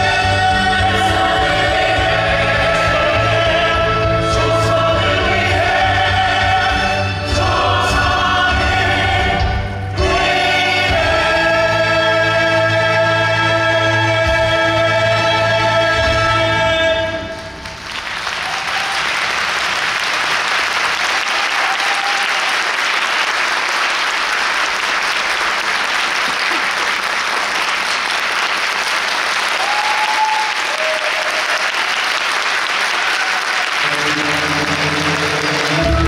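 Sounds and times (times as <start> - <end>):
audience applauding: 17.4 - 36.0
short cheers: 18.3 - 19.3, 21.1 - 22.6, 29.5 - 32.2, 32.8 - 33.8.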